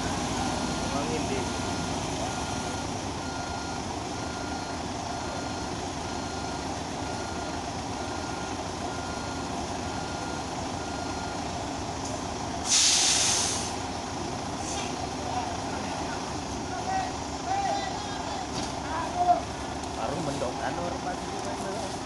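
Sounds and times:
heavy vehicle engine running: 0.0s - 22.0s
reversing alarm beeping: 0.3s - 11.5s.

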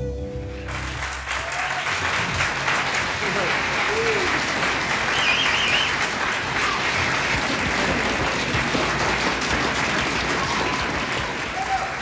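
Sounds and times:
audience applauding: 0.6s - 12.0s
high wavering whistle: 5.1s - 5.9s.

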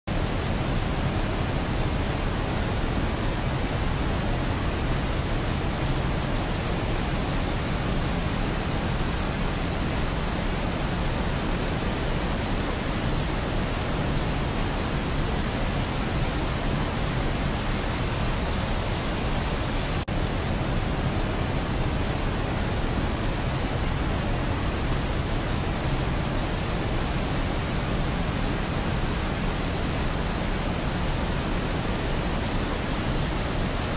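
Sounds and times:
steady rain hiss: 0.1s - 33.9s.

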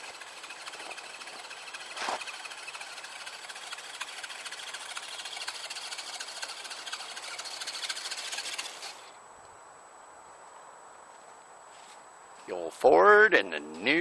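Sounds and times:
electric motors whirring: 0.0s - 9.1s.

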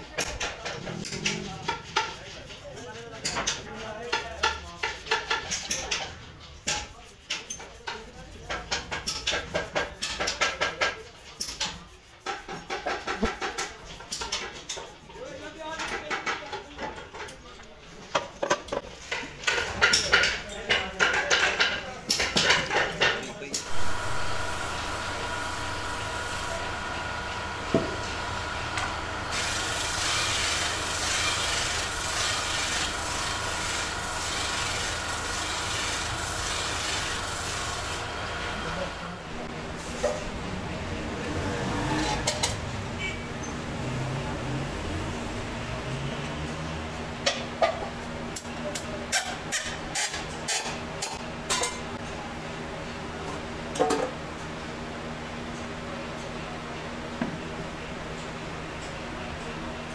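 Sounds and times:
buffing motor humming: 23.6s - 38.9s
wood rasping against buffing wheel: 23.6s - 39.0s.

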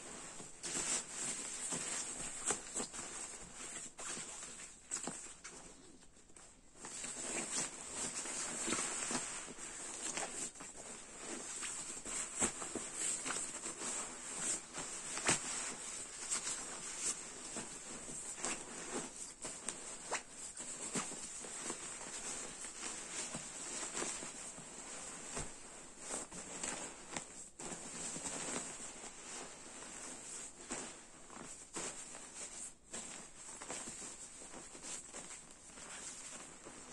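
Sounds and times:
sleeping bag crinkling and rustling: 0.0s - 36.9s.

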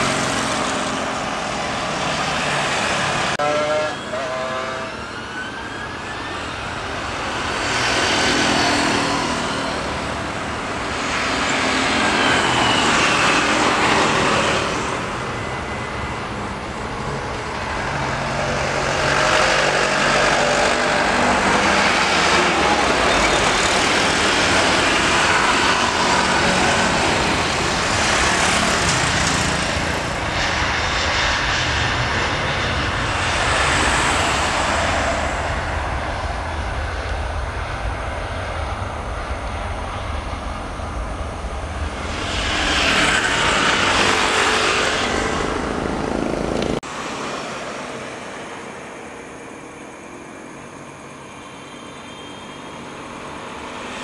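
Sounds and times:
jet engines at takeoff power: 0.0s - 54.0s.

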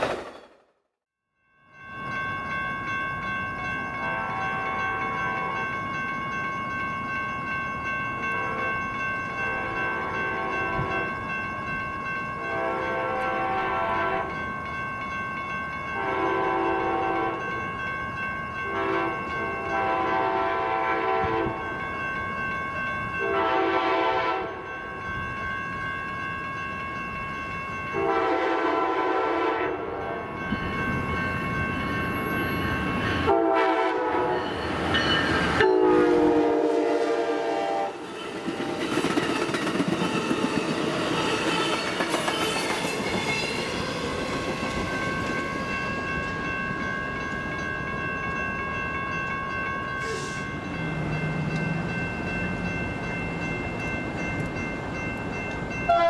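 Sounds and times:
train horn blasts: 4.0s - 5.6s, 9.5s - 11.0s, 12.4s - 14.3s, 16.0s - 17.4s, 18.7s - 21.6s, 23.2s - 24.6s, 28.0s - 30.2s, 33.3s - 34.5s, 35.6s - 38.0s
high ringing tone: 29.4s - 36.6s, 40.1s - 56.0s.

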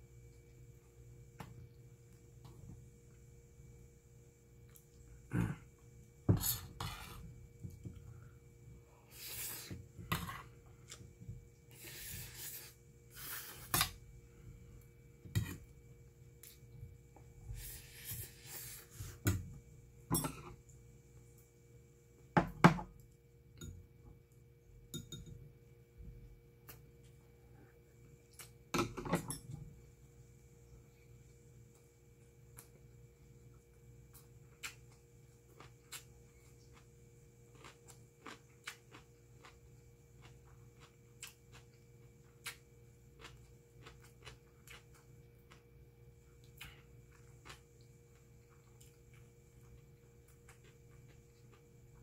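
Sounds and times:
close-up chewing: 37.5s - 42.6s, 43.2s - 45.7s.

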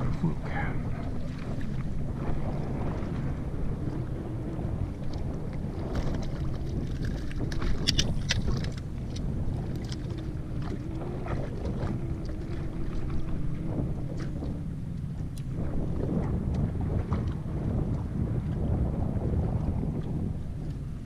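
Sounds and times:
faint steady hum: 0.0s - 5.5s
water slapping boat hull: 0.0s - 21.0s
wind buffeting microphone: 0.0s - 21.0s.

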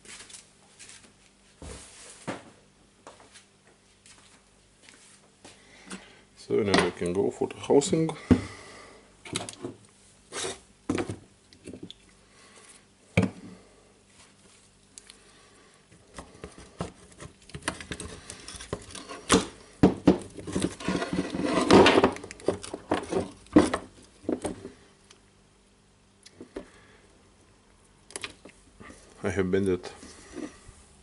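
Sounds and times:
rattling and scraping: 20.1s - 24.6s.

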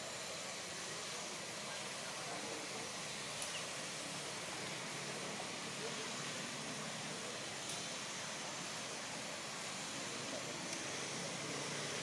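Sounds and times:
outdoor background hiss: 0.0s - 12.0s
faint click: 3.4s - 3.6s.

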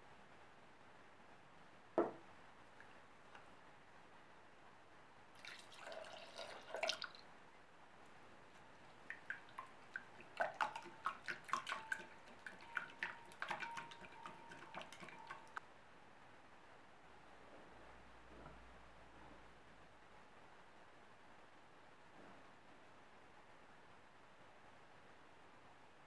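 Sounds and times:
liquid pouring into a jug: 5.4s - 7.3s, 8.9s - 15.6s
whisk clicking against ceramic bowl: 9.1s - 15.6s
bowl ringing: 11.7s - 15.6s.

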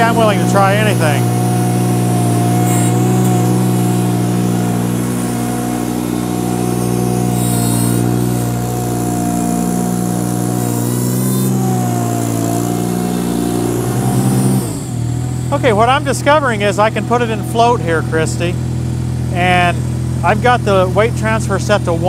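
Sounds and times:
tractor engine running: 0.0s - 22.0s.

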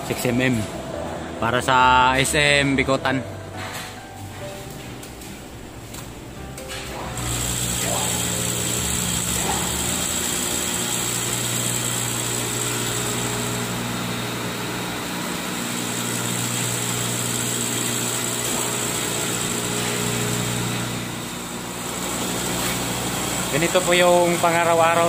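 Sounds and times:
motor hum: 5.0s - 25.0s
glass edging machine grinding: 7.0s - 25.0s.

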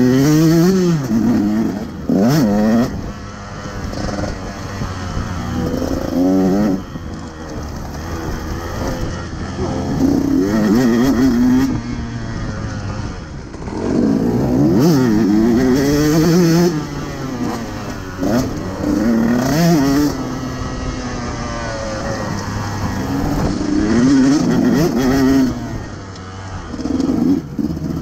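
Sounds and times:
motocross engine revving: 0.0s - 28.0s.

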